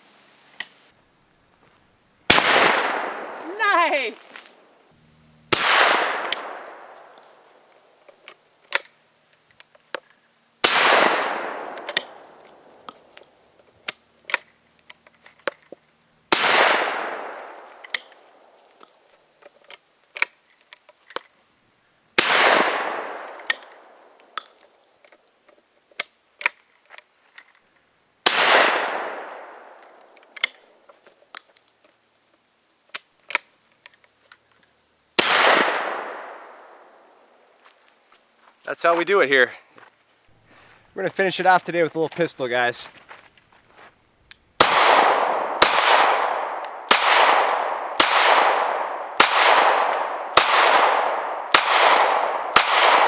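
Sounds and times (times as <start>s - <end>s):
shotgun blasts with echo: 2.3s - 3.6s, 5.5s - 7.2s, 10.6s - 12.7s, 16.3s - 18.1s, 22.2s - 24.1s, 28.2s - 29.8s, 35.2s - 36.9s, 44.6s - 53.0s
shotgun action clicking: 6.2s - 7.2s, 11.7s - 12.2s, 17.8s - 18.2s.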